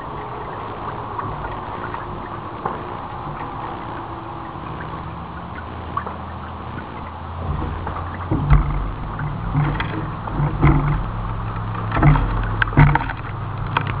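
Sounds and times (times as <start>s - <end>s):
truck engine revving: 0.0s - 14.0s
water splashes: 0.0s - 14.0s
sharp knocks: 7.4s - 14.0s.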